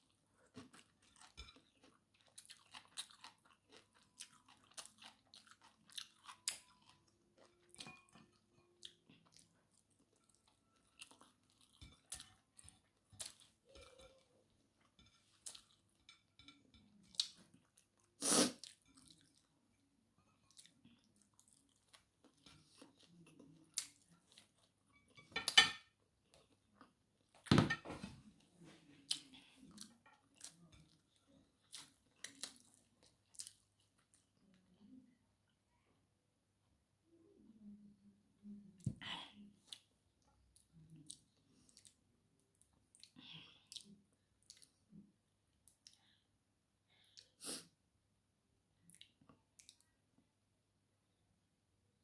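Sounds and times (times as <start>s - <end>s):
person chewing food: 0.0s - 27.5s, 28.9s - 34.6s, 39.6s - 45.0s, 48.8s - 50.0s.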